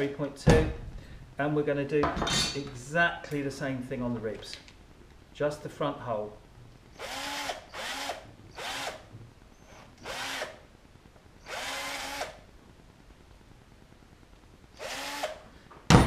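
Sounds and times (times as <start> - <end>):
cordless drill bursts: 7.0 - 9.0, 9.7 - 10.6, 11.4 - 12.4, 14.8 - 15.4.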